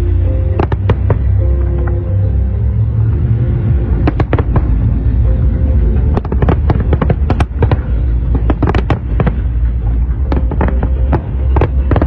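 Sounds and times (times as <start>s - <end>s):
low rumble: 0.0s - 12.0s
fireworks bangs: 0.5s - 1.4s, 4.0s - 4.9s, 6.0s - 12.0s.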